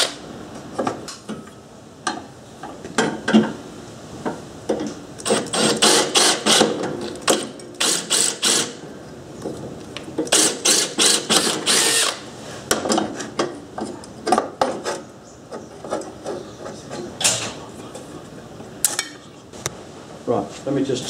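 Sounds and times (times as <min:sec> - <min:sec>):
cordless drill drilling steel: 0:07.8 - 0:08.8, 0:10.3 - 0:12.2.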